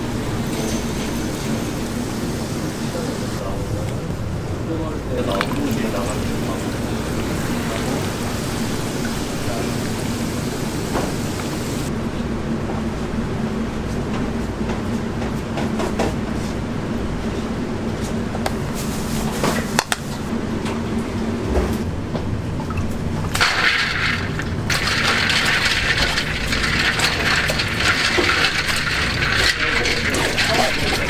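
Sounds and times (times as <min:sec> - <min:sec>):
low kitchen hum: 0:00.0 - 0:31.0
tap water pouring into sink: 0:05.2 - 0:11.6, 0:22.7 - 0:31.0.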